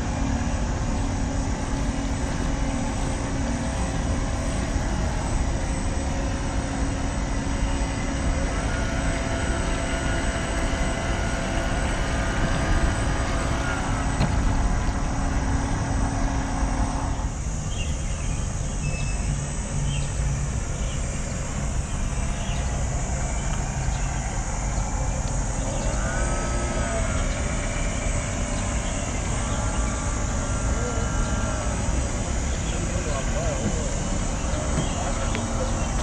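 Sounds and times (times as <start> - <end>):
model boat electric motor whir: 0.0 - 36.0.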